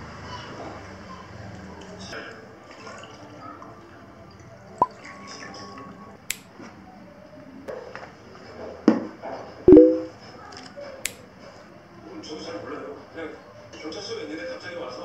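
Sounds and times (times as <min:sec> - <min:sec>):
bottle thump with ringing tone: 0:09.7 - 0:10.1.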